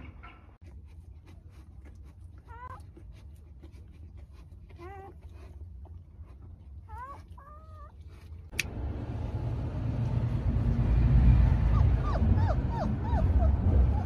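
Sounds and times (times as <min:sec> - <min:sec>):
puppies whining: 0:02.2 - 0:03.4, 0:04.2 - 0:08.3, 0:11.6 - 0:14.0
puppies squeaking: 0:04.7 - 0:05.2, 0:06.9 - 0:08.0, 0:11.7 - 0:14.0
loud rushing noise with low rumble: 0:08.6 - 0:14.0.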